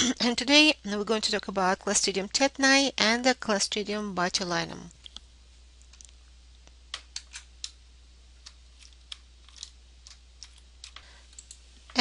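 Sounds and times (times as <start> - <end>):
faint low hum: 0.0 - 12.0
computer keys clicking: 8.4 - 11.6.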